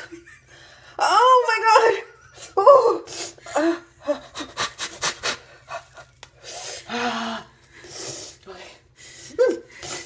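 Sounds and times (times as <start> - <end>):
pained breaths: 6.4 - 10.0.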